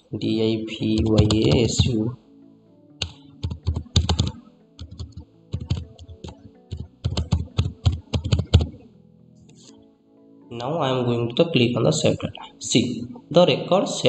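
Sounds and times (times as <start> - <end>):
keyboard typing: 0.8 - 2.1, 3.0 - 8.8.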